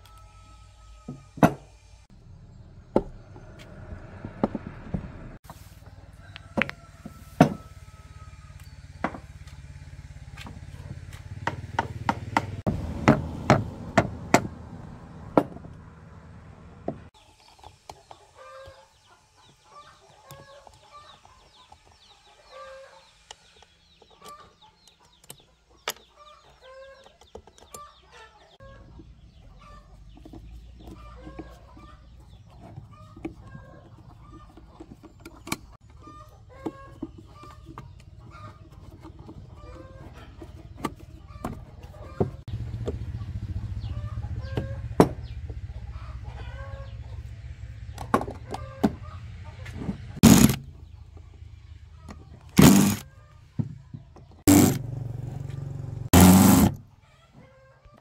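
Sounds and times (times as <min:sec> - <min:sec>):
chickens clucking: 0:17.2 - 0:54.4, 0:56.9 - 0:58.0.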